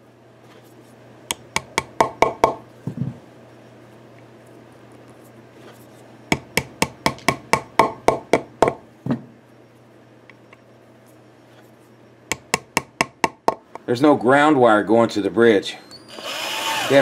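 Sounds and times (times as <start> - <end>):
hammer tapping metal fittings: 6.3 - 8.8, 12.3 - 13.8.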